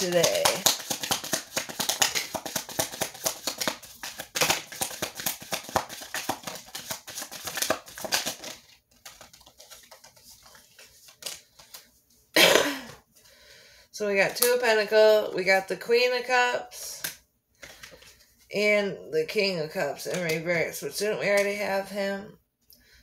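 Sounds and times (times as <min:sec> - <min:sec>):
cards being shuffled: 0:00.0 - 0:11.9
handling of cards: 0:00.0 - 0:12.2.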